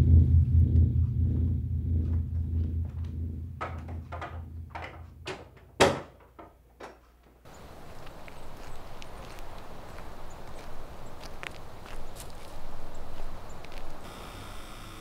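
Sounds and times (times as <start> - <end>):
low droning rumble: 0.0 - 5.7
soft knocks and rustles: 2.9 - 7.5
door shutting with a thud: 3.6 - 6.2
steady hiss: 7.5 - 15.0.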